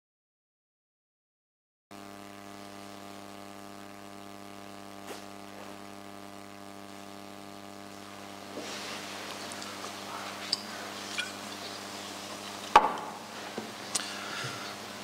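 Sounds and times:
electrical mains hum: 1.9s - 15.0s.

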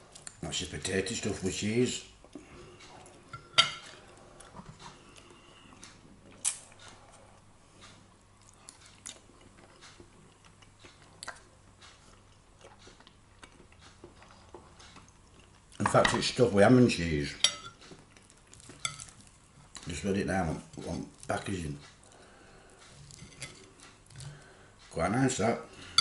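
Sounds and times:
person chewing crunchy food: 2.2s - 15.9s, 17.8s - 20.0s.

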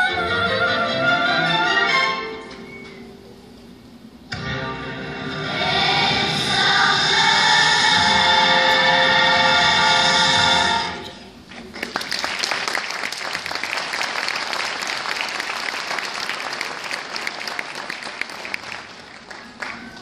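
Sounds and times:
children's choir singing: 4.8s - 11.2s
audience applauding: 11.5s - 20.0s.

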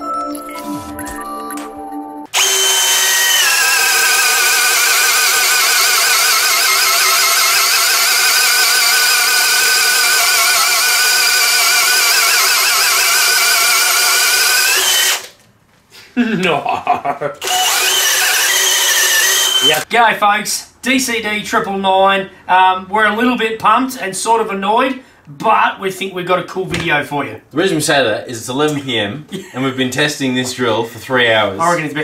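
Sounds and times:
cordless drill boring into wood: 2.3s - 15.3s, 17.4s - 19.8s.

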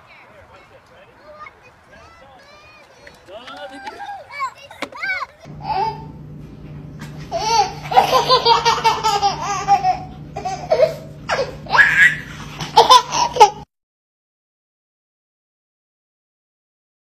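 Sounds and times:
baby laughing: 2.0s - 6.1s, 7.3s - 13.7s.

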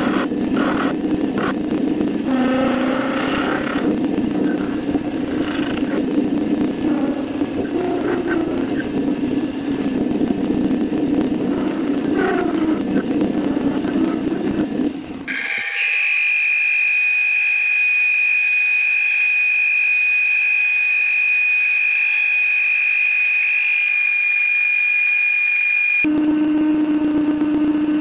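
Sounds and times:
metal lathe grinding cut: 2.2s - 6.0s, 15.3s - 28.0s
high-pitched lathe whine: 2.2s - 10.2s, 10.8s - 28.0s.

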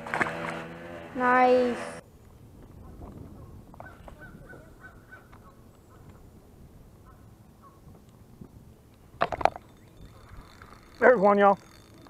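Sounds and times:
honking bird calls: 7.0s - 7.9s, 9.3s - 12.0s.

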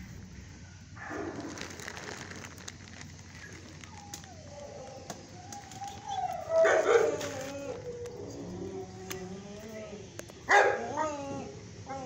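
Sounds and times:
dog whining: 3.8s - 9.8s
dog barking: 6.6s - 7.4s, 10.5s - 11.0s.

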